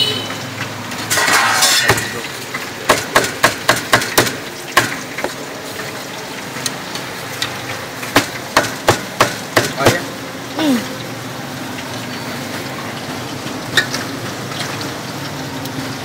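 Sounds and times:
cleaver chopping on wooden block: 0:08.2 - 0:10.0.

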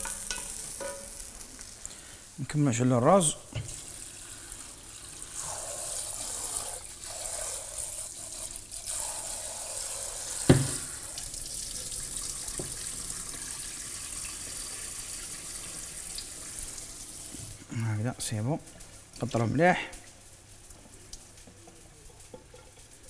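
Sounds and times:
tap water splashing into bowl: 0:10.4 - 0:11.3, 0:12.4 - 0:12.9
sharp knock: 0:10.5 - 0:10.9.

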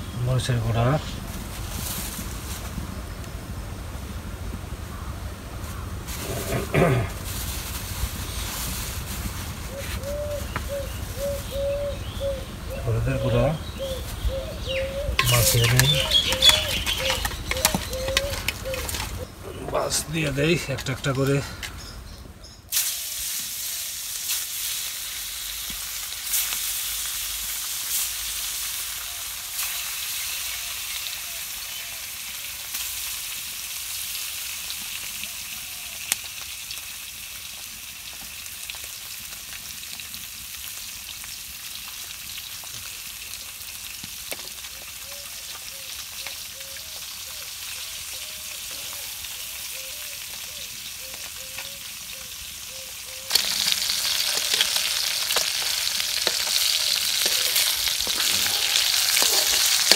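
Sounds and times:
fish sizzling in hot oil: 0:07.2 - 0:12.1, 0:15.1 - 0:19.3, 0:22.7 - 0:59.9.

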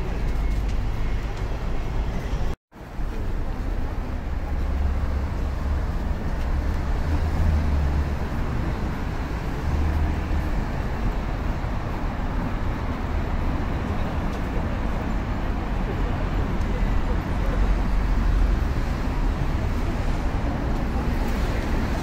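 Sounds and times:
street traffic passing cars: 0:00.0 - 0:22.0.

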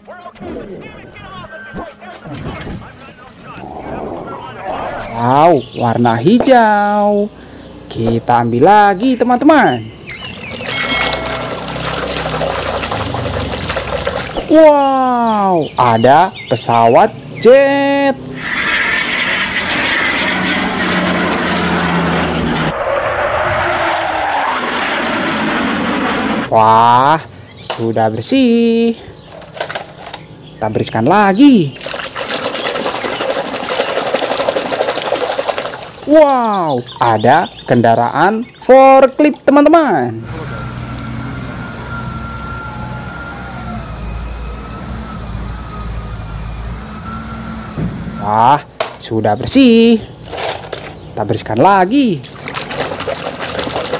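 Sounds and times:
low engine drone: 0:02.3 - 0:08.5, 0:09.7 - 0:15.6, 0:17.1 - 0:27.6, 0:40.1 - 0:50.6
high whine: 0:02.8 - 0:06.7
fighter jet flying past: 0:03.4 - 0:05.7, 0:18.3 - 0:26.5.

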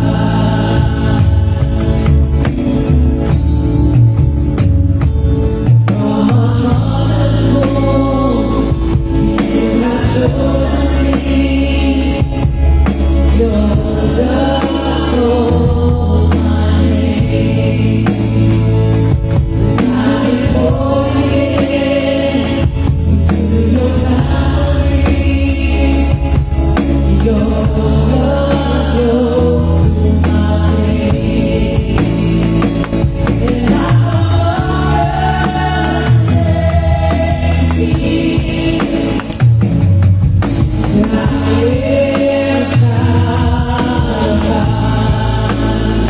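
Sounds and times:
people singing gospel song: 0:00.0 - 0:04.0, 0:05.5 - 0:46.0
electronic drum kit: 0:00.0 - 0:46.0
sustained bass notes: 0:00.0 - 0:46.0.

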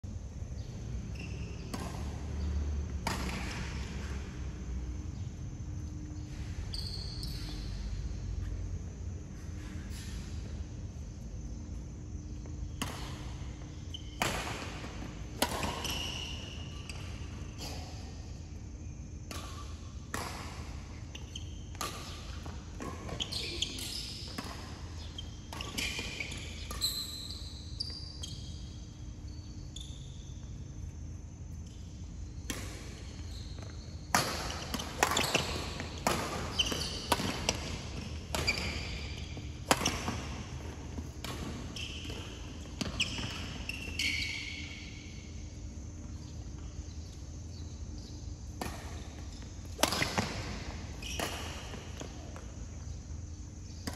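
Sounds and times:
shoes squeaking on court floor: 0:00.6 - 0:53.9
rackets hitting shuttlecock: 0:01.6 - 0:04.2, 0:12.8 - 0:13.4, 0:14.1 - 0:17.9, 0:21.7 - 0:27.1, 0:33.6 - 0:43.5, 0:48.5 - 0:52.6.

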